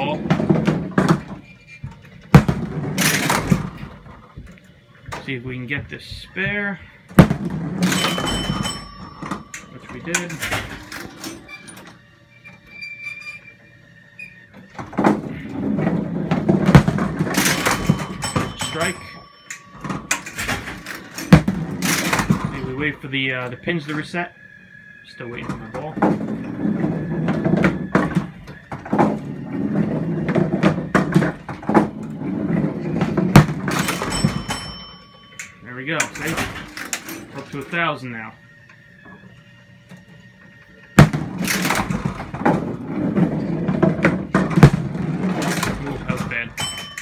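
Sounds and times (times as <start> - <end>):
bowling pins crashing: 0.0 - 4.3, 7.1 - 11.5, 14.8 - 22.9, 25.4 - 35.4, 41.0 - 47.0
bowling ball rolling: 0.0 - 37.7, 38.4 - 47.0
motor rumble: 13.5 - 35.7
mechanical clicks and clunks: 30.3 - 37.6, 39.9 - 47.0.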